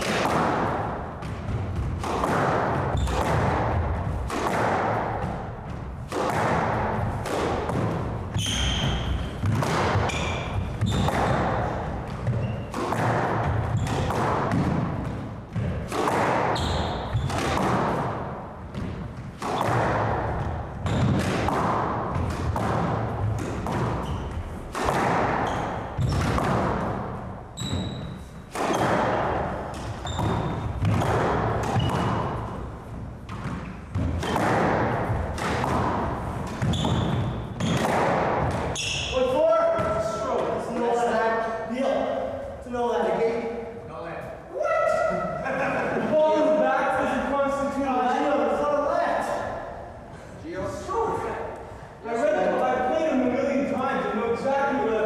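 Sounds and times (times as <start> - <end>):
squash ball struck by racquets: 0.0 - 40.9
shoes squeaking on floor: 2.8 - 3.5, 8.3 - 14.1, 16.4 - 17.5, 20.8 - 21.3, 23.2 - 26.5, 27.5 - 29.0, 29.6 - 34.5, 36.2 - 41.0.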